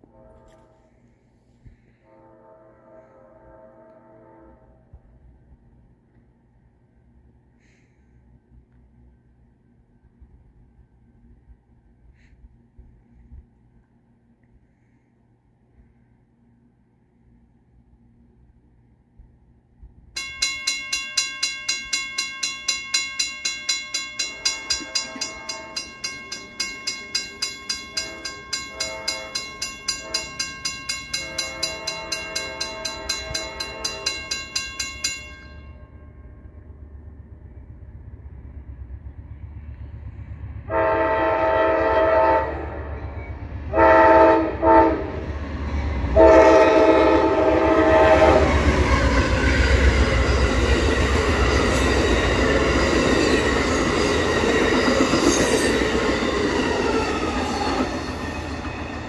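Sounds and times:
train horn blasts: 0:00.0 - 0:05.3, 0:24.2 - 0:27.0, 0:27.7 - 0:34.7, 0:40.7 - 0:45.3, 0:46.0 - 0:49.8
train rumble: 0:00.0 - 0:59.0
railroad crossing bell ringing: 0:20.2 - 0:36.8, 0:40.7 - 0:45.1, 0:45.9 - 0:59.0.

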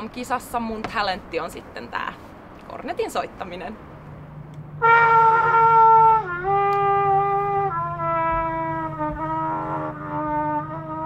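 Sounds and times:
cornet playing held notes: 0:04.8 - 0:11.0.

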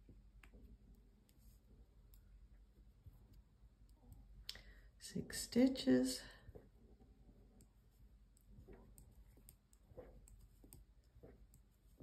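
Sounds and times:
knitting needles clicking: 0:07.5 - 0:12.0.

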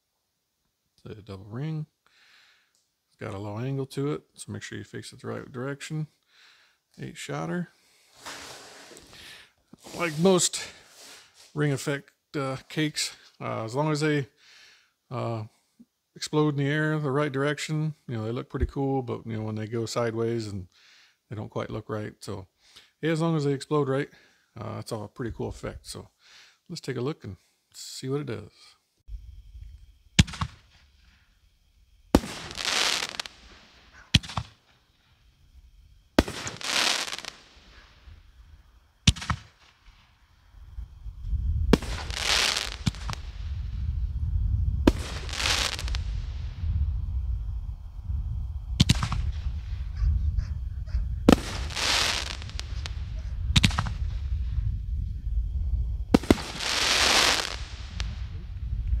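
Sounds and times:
fireworks hissing: 0:07.8 - 0:11.6, 0:29.1 - 0:50.0, 0:51.1 - 0:59.0
fireworks booms: 0:30.1 - 0:30.9, 0:32.1 - 0:34.7, 0:36.1 - 0:38.4, 0:39.0 - 0:59.0.

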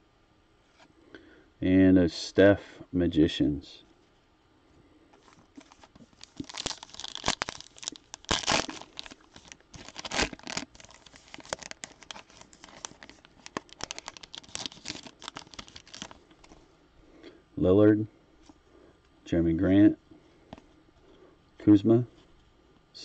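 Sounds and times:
foil wrapper crinkling and tearing: 0:05.5 - 0:16.6.

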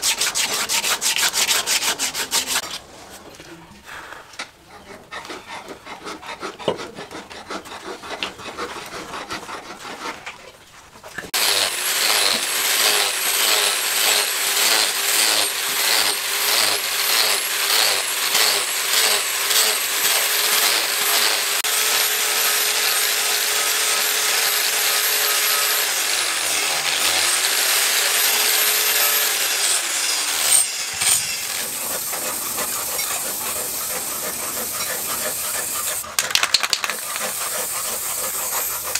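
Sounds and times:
angle grinder grinding steel: 0:00.0 - 0:02.8, 0:11.2 - 0:38.9
scraping on wooden handle: 0:04.7 - 0:10.6.

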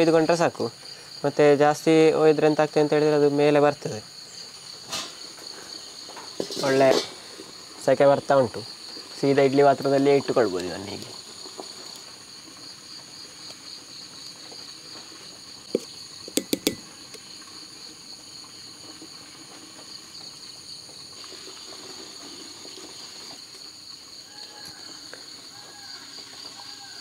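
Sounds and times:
insects shrilling: 0:00.0 - 0:27.0
sharp knocks: 0:15.8 - 0:16.9.

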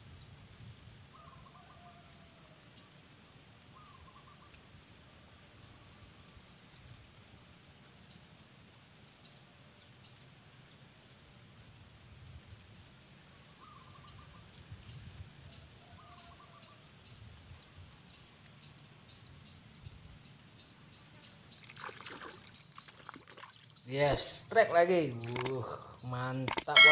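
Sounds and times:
trilled bird calls: 0:03.8 - 0:04.6, 0:13.6 - 0:14.5
steady high hiss: 0:23.9 - 0:26.9.

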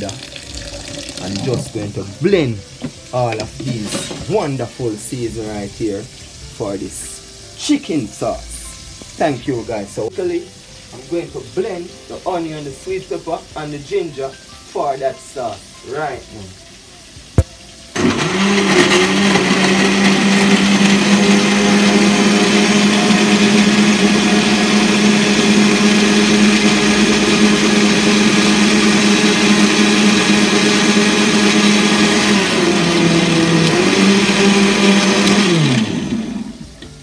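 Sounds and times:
electric blender running: 0:00.0 - 0:01.9, 0:17.9 - 0:36.9.

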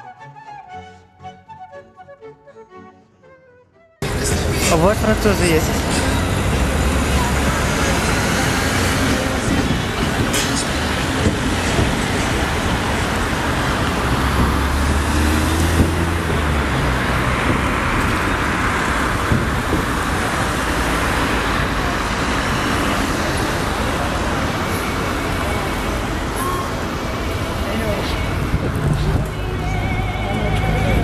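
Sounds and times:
cars driving past: 0:04.0 - 0:31.0
large vehicle engine passing: 0:04.0 - 0:31.0.

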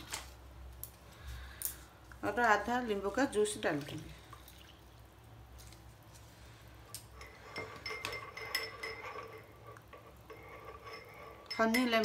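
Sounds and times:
teaspoon clinking in porcelain cup: 0:07.2 - 0:09.8, 0:10.8 - 0:12.0.

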